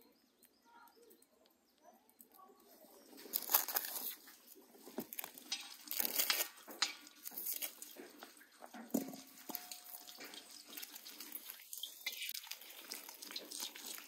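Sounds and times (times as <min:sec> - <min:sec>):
dry onion skin crackling: 0:02.1 - 0:14.0
light knocks in metal bowl: 0:08.2 - 0:10.5.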